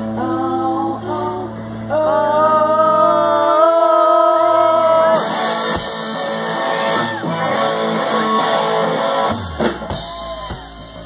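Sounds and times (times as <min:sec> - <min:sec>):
electric guitar: 0:00.0 - 0:11.0
live rock band playing: 0:05.0 - 0:11.0.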